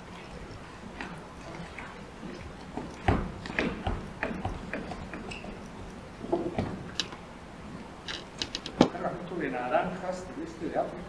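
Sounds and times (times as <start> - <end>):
knocks clicks and rustles of movement: 2.2 - 7.2, 8.0 - 9.0.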